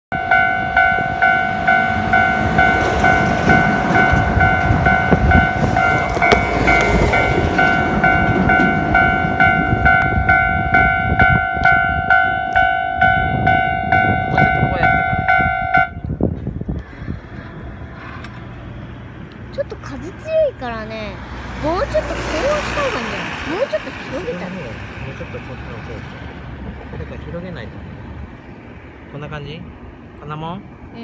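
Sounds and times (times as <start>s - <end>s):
level-crossing bell clanging: 0.1s - 16.0s
rumble of something passing: 2.0s - 19.4s.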